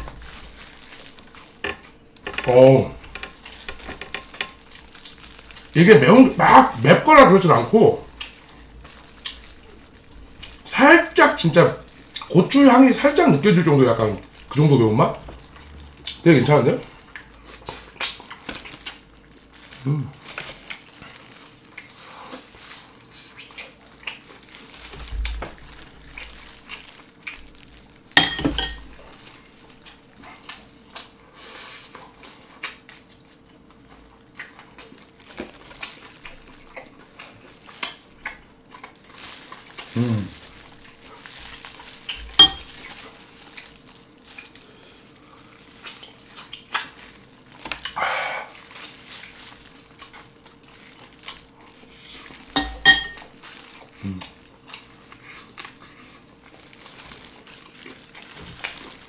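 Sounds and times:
wet chewing and smacking: 3.0s - 5.8s, 8.0s - 10.7s, 16.8s - 28.2s, 28.8s - 59.0s
spoon clinking on bowl: 28.2s - 28.8s, 42.4s - 42.7s, 52.6s - 53.2s.

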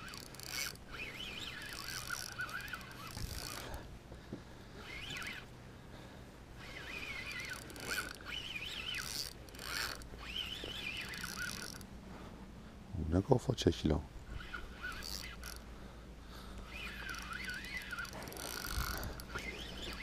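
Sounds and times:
spinning reel whirring: 0.0s - 3.9s, 4.8s - 5.5s, 6.6s - 11.9s, 14.2s - 15.7s, 16.6s - 20.0s.

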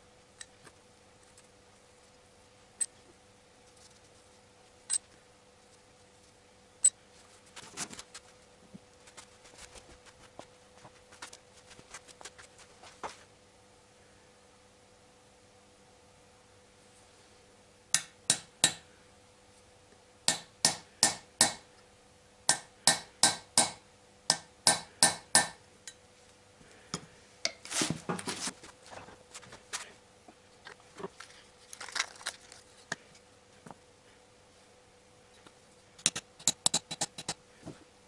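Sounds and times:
small hammer tapping metal: 17.9s - 18.8s, 20.3s - 21.6s, 22.5s - 26.0s, 36.0s - 37.4s
small parts clattering: 30.6s - 32.9s.

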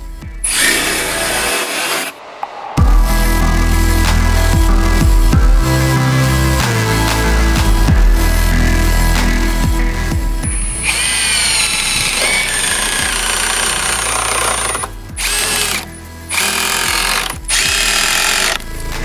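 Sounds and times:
impact driver drilling sheet metal: 0.4s - 2.1s, 10.6s - 18.6s.

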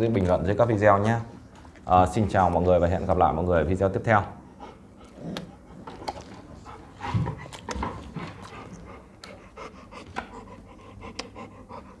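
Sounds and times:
dog panting: 4.4s - 12.0s.

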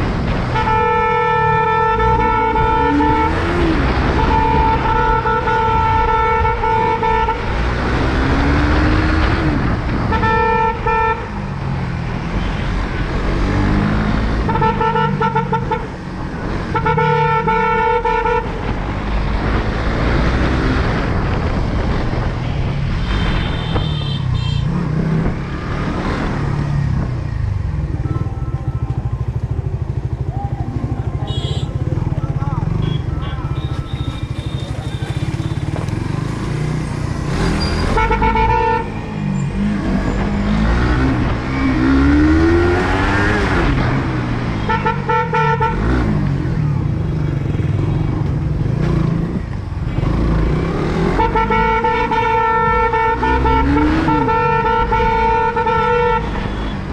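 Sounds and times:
vehicle horn blasts: 0.5s - 7.4s, 14.5s - 15.9s, 31.2s - 31.8s, 32.7s - 35.8s, 37.7s - 39.0s, 51.2s - 56.8s
motorcycle engine running: 27.1s - 37.1s.

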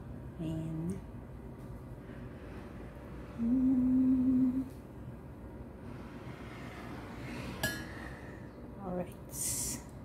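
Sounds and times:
faint room noise: 0.0s - 10.0s
person humming: 3.4s - 4.8s.

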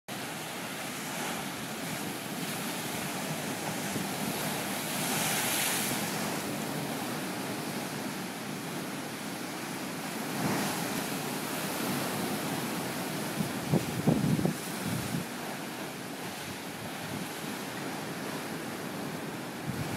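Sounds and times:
waves washing against rocky shore: 0.1s - 19.9s
wind buffeting microphone: 13.1s - 15.5s, 16.2s - 19.9s.

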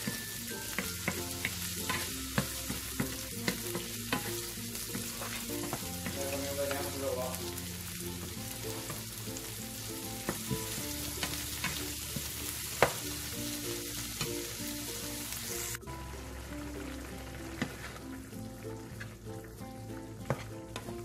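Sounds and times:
vegetables sizzling in oil: 0.0s - 21.0s
wooden spoon scraping pan: 0.8s - 7.0s.

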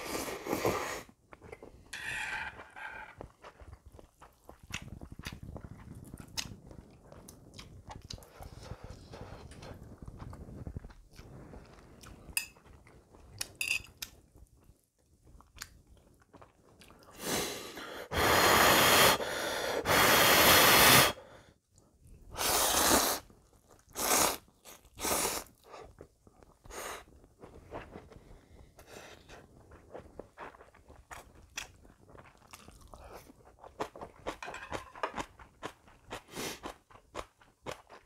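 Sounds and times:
man slurping noodles: 0.0s - 1.1s, 17.2s - 21.2s, 22.3s - 23.3s, 23.9s - 25.7s
chewing and mouth smacks: 3.1s - 17.2s, 29.3s - 38.0s.

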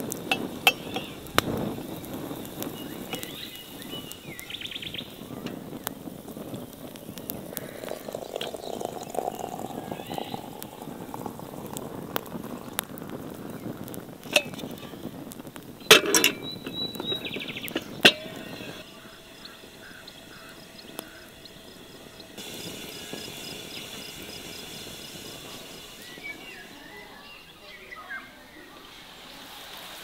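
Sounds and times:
liquid pouring into teapot: 0.0s - 27.2s
sharp ceramic clinks: 0.3s - 1.1s, 15.9s - 16.8s.

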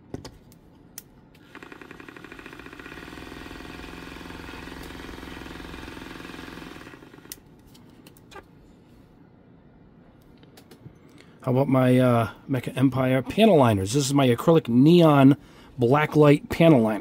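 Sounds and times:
paint mixer buzzing: 1.4s - 7.4s.

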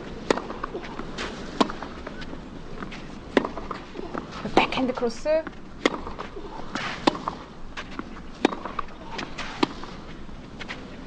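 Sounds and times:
tennis ball pops off racquets: 3.3s - 4.8s, 5.8s - 9.9s.

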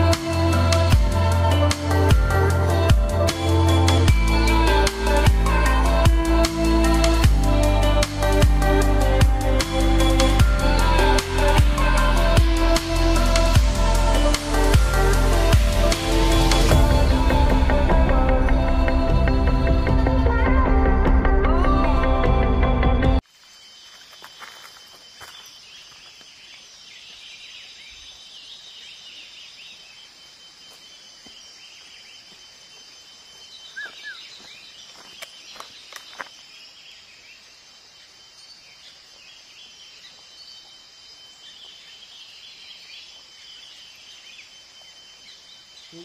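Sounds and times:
birds chirping: 23.5s - 46.0s.

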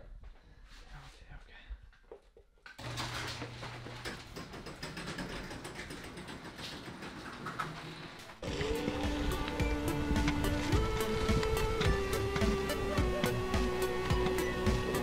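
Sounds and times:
wheel clicking and rattling on concrete: 2.8s - 12.8s
electric motor humming low: 8.4s - 15.0s.

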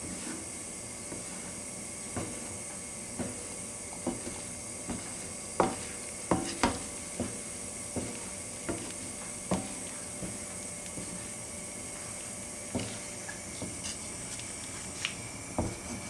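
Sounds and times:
steady hiss: 0.0s - 16.0s
spatula knocking on frying pan: 4.1s - 7.4s.

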